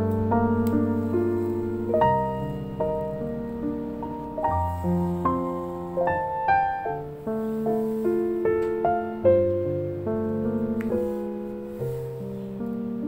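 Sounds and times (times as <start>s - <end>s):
gentle piano tune: 0.0s - 13.0s.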